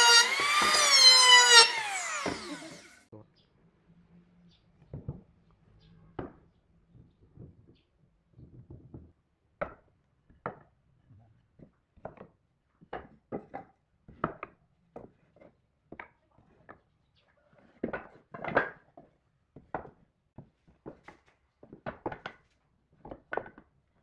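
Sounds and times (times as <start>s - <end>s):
wooden knocks and clatters: 6.2s - 16.8s, 17.6s - 23.8s.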